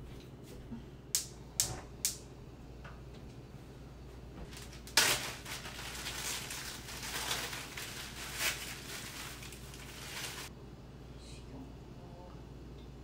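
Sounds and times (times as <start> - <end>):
plastic bag crinkling: 4.5 - 10.5.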